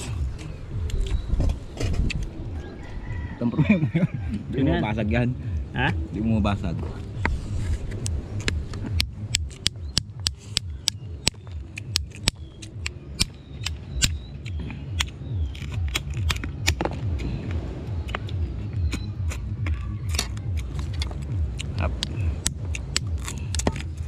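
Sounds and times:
low rumble: 0.0s - 24.0s
crab shells cracking: 8.4s - 17.3s, 18.0s - 24.0s.

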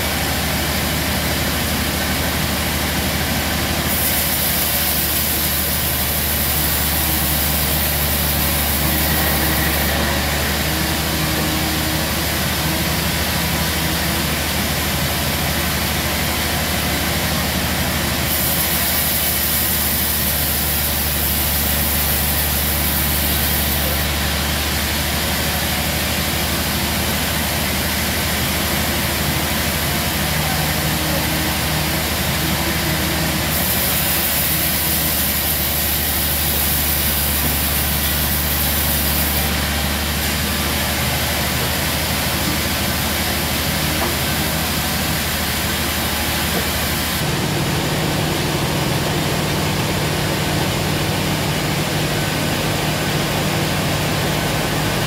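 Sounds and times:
deep sawmill machine hum: 0.0s - 55.0s
saw hissing through log: 0.0s - 55.0s.

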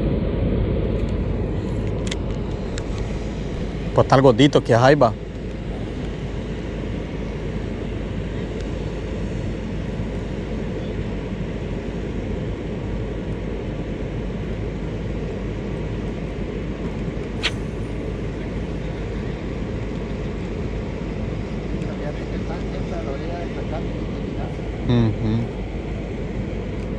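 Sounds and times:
low outdoor rumble: 0.0s - 26.9s
sharp click: 17.4s - 17.8s.

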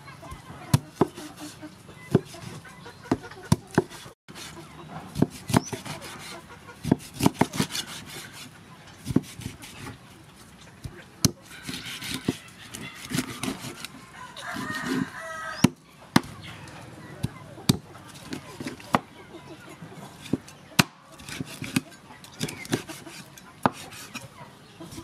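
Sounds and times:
chickens clucking: 0.0s - 25.0s
cleaver chopping on wooden board: 3.1s - 4.0s, 5.1s - 6.0s, 6.8s - 8.2s, 9.0s - 9.8s, 15.6s - 16.4s, 22.4s - 24.1s
rooster crowing: 14.0s - 15.6s.

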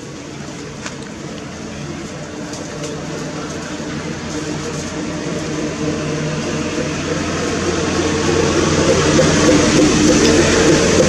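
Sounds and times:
engine drone: 0.0s - 11.0s.

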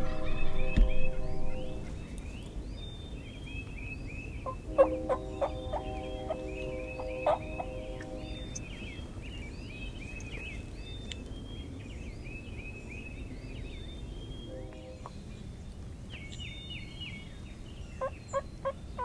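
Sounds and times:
songbirds chirping: 0.0s - 19.0s
wild turkey calling: 4.3s - 8.6s, 18.0s - 19.0s.

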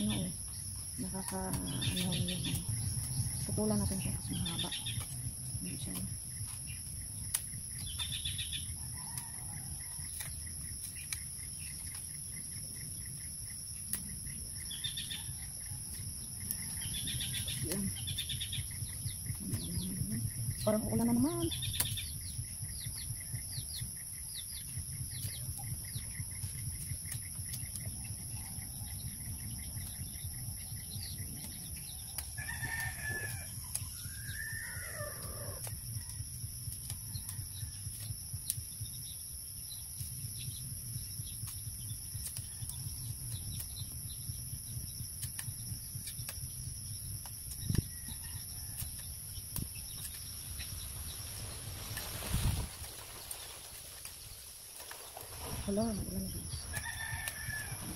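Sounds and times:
rooster crowing: 32.3s - 35.7s, 56.6s - 57.9s.

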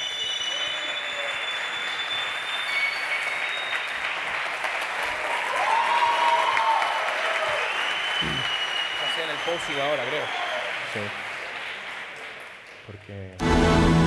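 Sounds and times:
whistles: 0.0s - 4.5s, 5.9s - 10.9s
audience applauding: 0.0s - 13.4s
cheering voices: 4.9s - 11.5s.

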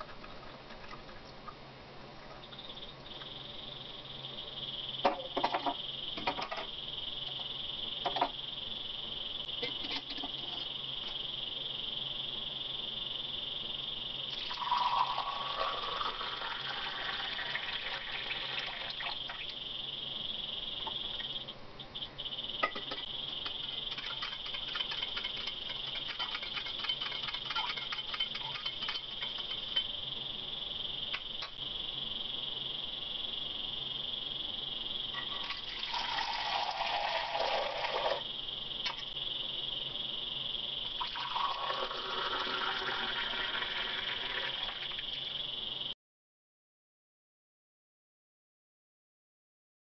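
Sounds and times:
tea pouring into steel tumbler: 14.3s - 19.0s, 35.3s - 38.2s, 41.0s - 45.2s
spoon stirring in steel tumbler: 23.0s - 30.0s
steel utensils clinking: 23.8s - 29.9s.

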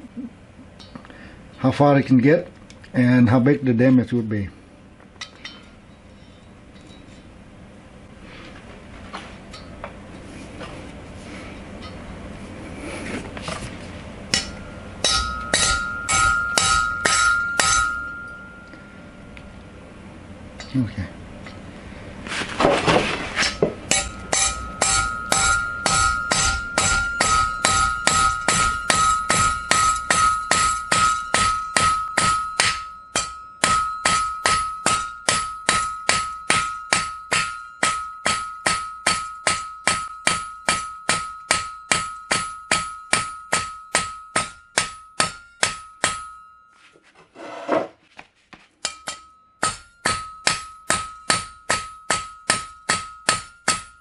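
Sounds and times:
steady metallic ring: 5.2s - 8.2s, 11.3s - 12.8s, 13.4s - 22.2s, 23.2s - 47.1s, 48.8s - 54.0s
hammer clanking on steel blade: 14.3s - 19.0s, 23.4s - 46.6s, 48.8s - 54.0s.

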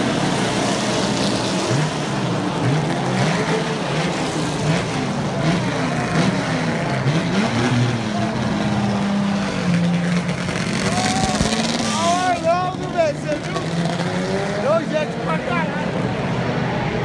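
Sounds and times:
race car engines revving: 0.0s - 17.0s
steady engine din: 0.0s - 17.0s.

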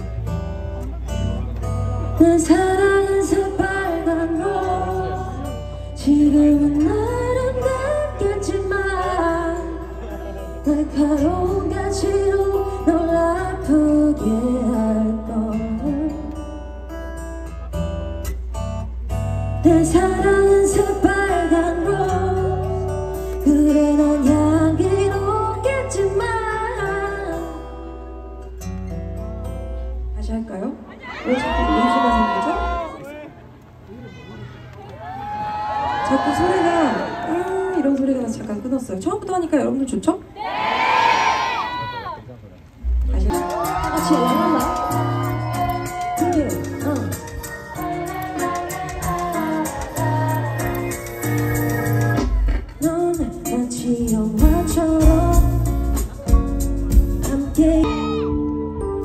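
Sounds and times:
guitar: 0.0s - 39.7s, 42.6s - 59.0s
woman singing live: 2.1s - 16.5s, 19.6s - 28.0s, 43.2s - 59.0s
deep bass: 54.0s - 59.0s.

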